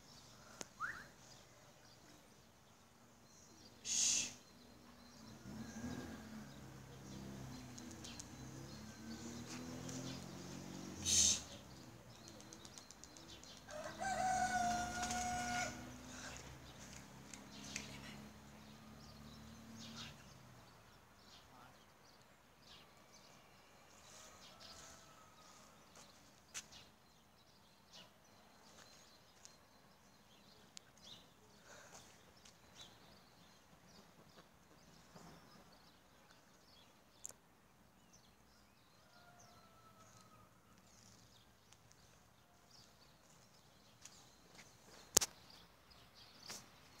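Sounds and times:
distant bird chirps: 0.1 - 22.1.

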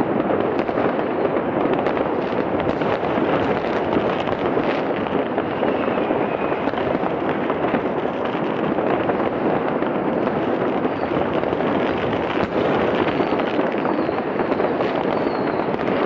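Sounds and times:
firecrackers crackling: 0.0 - 16.0.

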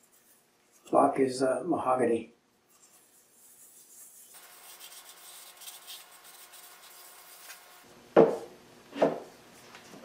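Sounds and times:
wooden block knocking on bench: 8.2 - 9.2.

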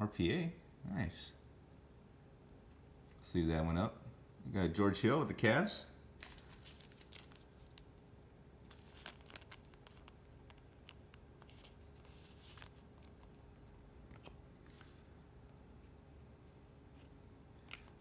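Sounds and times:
cards and foil wrappers crinkling: 6.2 - 8.0, 8.6 - 15.0.

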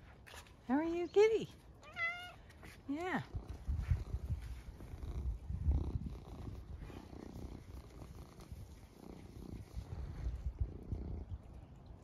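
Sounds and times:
cat purring: 3.2 - 11.8.

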